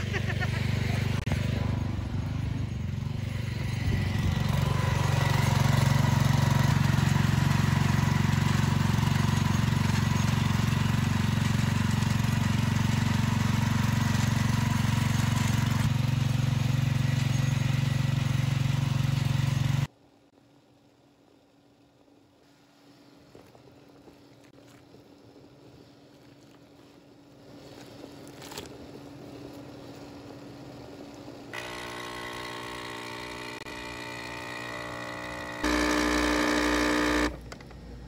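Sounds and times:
tiller engine running: 0.0s - 19.9s, 29.4s - 38.0s.

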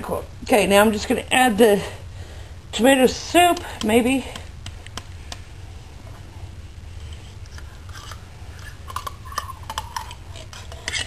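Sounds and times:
low hum: 0.0s - 11.0s
clicks and scrapes of can: 7.5s - 11.0s.

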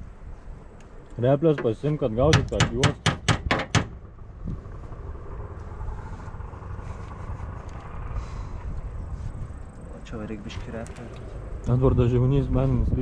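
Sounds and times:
low steady rumble: 0.0s - 13.0s
hammer tapping sheet metal: 1.6s - 4.0s.

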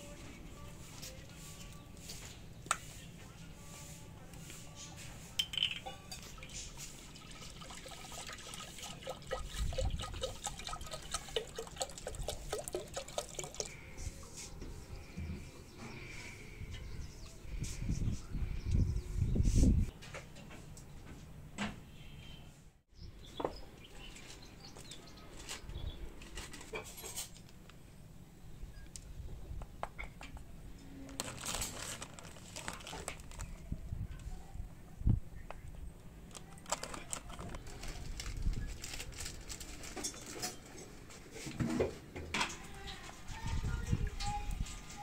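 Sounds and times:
paper packet rustling: 31.0s - 33.7s, 36.2s - 40.6s.

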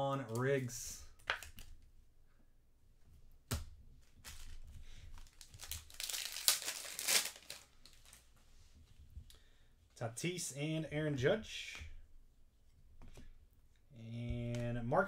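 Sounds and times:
wrapper crinkling and tearing: 4.0s - 8.3s.

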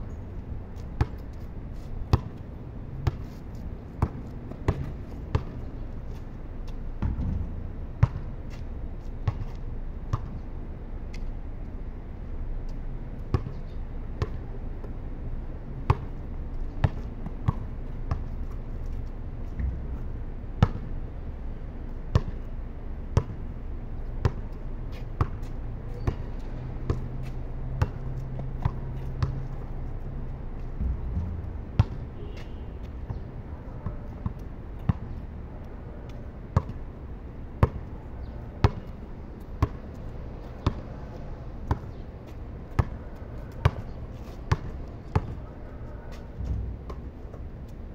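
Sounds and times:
steady low background hum: 0.0s - 47.9s
basketball bouncing on concrete: 2.1s - 2.4s, 3.0s - 3.3s, 4.0s - 5.6s, 6.6s - 8.6s, 9.2s - 10.4s, 13.3s - 13.6s, 15.9s - 16.2s, 16.8s - 18.3s, 20.6s - 20.9s, 22.1s - 22.5s, 23.2s - 23.4s, 24.2s - 29.9s, 30.6s - 33.2s, 36.1s - 36.8s, 37.6s - 38.9s, 39.6s - 39.9s, 40.6s - 40.9s, 41.7s - 42.0s, 42.7s - 45.4s.

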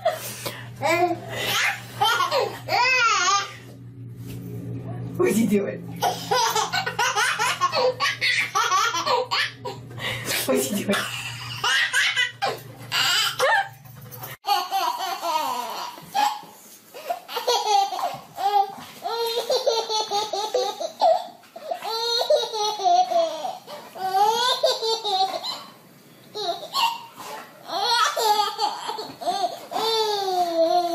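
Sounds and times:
low hum: 0.5s - 11.7s
baby laughing: 0.8s - 3.6s, 6.0s - 9.8s, 10.9s - 13.8s, 14.4s - 25.8s, 26.4s - 30.9s.

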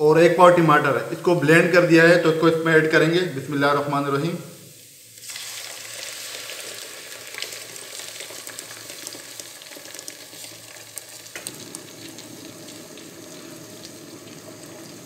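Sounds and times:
hot oil sizzling and crackling: 1.0s - 15.0s.

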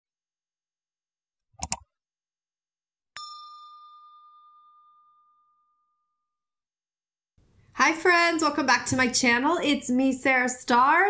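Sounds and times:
quick clicks: 1.6s - 1.8s
bright ding: 3.2s - 6.2s.

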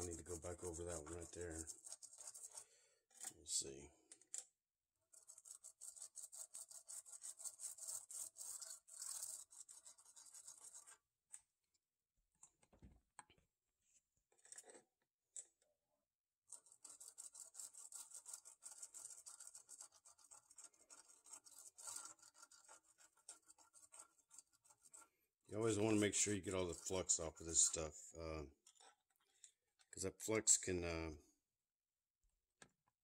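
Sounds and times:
brush scrubbing circuit board: 0.0s - 3.3s, 5.0s - 11.1s, 16.5s - 27.9s.

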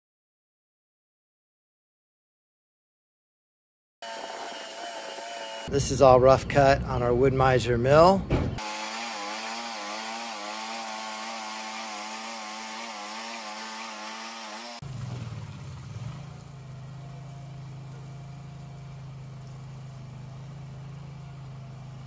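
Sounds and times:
bandsaw whine and sawing hiss: 4.0s - 5.9s, 8.6s - 14.8s
sawmill running hum: 4.0s - 7.6s, 8.6s - 22.0s.

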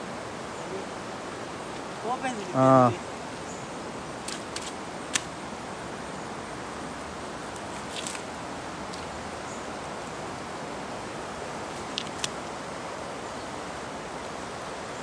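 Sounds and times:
stream water flowing: 0.0s - 15.0s
faint rustle: 7.4s - 9.6s.

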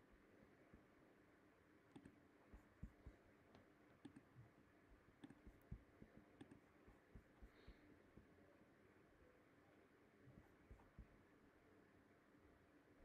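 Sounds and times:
computer mouse clicks: 1.9s - 4.3s, 5.2s - 7.6s.

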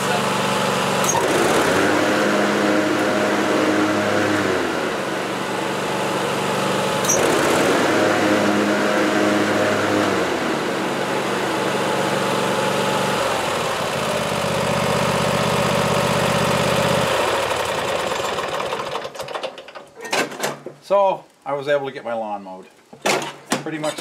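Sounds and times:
lawn tractor engine running: 0.0s - 19.9s.

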